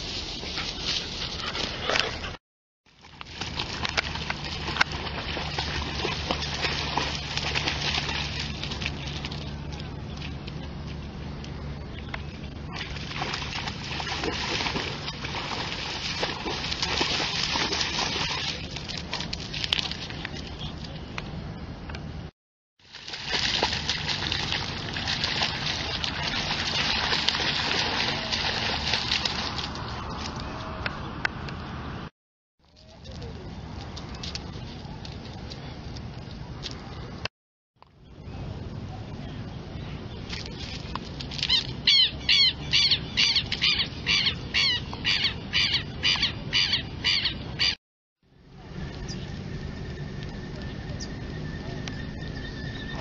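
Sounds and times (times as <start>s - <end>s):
dog splashing through water: 3.0s - 9.8s, 12.7s - 20.5s, 22.8s - 30.5s
lapwing alarm calls: 41.5s - 47.8s.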